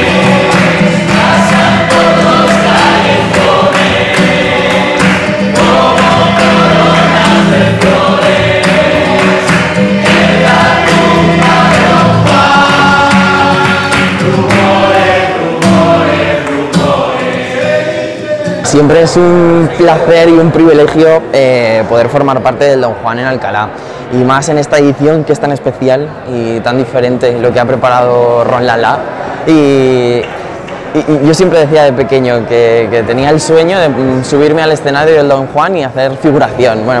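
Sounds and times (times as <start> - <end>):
hand claps: 0.0 - 17.8
men and women singing in chorus: 0.0 - 19.8.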